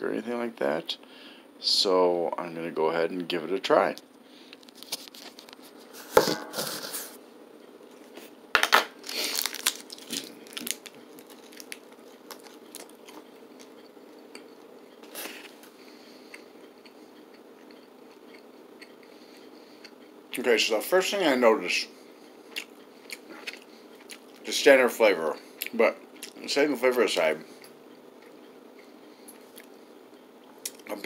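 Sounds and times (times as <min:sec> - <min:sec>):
faint steady hum: 0:00.0 - 0:31.0
plastic wrapper crinkling: 0:08.6 - 0:13.7
faint chewing: 0:09.2 - 0:20.2, 0:22.4 - 0:24.5, 0:27.4 - 0:30.9.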